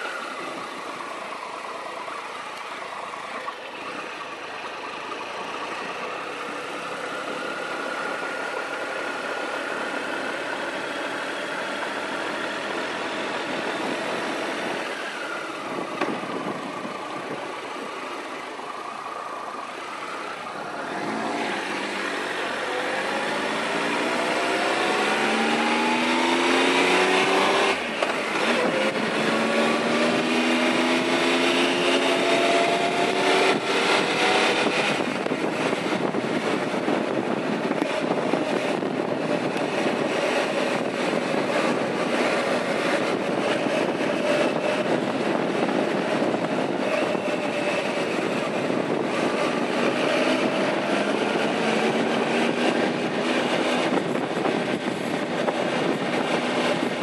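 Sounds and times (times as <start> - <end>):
motorcycle engine accelerating: 0.0 - 57.0
wind rushing over microphone: 12.4 - 18.4, 19.5 - 57.0.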